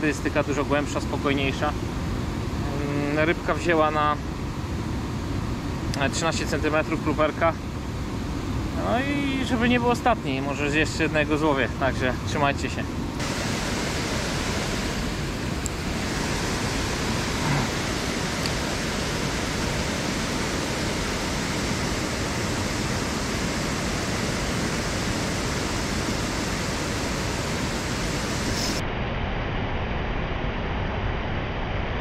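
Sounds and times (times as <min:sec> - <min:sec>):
water rushing over weir: 0:13.2 - 0:28.8.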